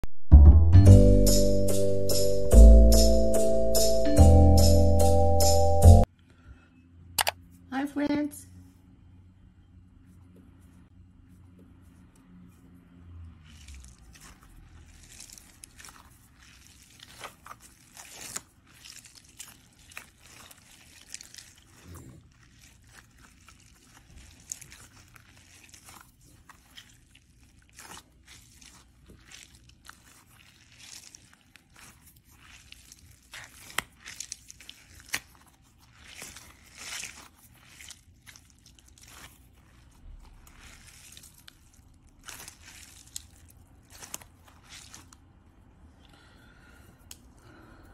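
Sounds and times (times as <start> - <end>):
rubbery balls squeezed by hand: 13.4 - 45.4.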